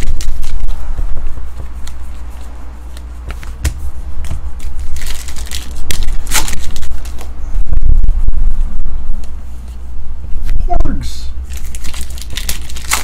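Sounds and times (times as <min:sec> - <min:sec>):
foil wrapper crinkling: 0:00.0 - 0:00.7, 0:04.6 - 0:07.3, 0:11.5 - 0:13.0
steady low hum: 0:00.0 - 0:13.0
trading cards flipping: 0:01.6 - 0:07.3, 0:11.5 - 0:13.0.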